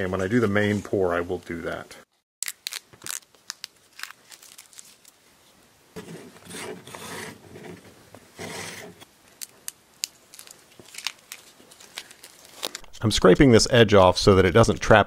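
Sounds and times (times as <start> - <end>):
knife scraping plaster: 6.0 - 7.8.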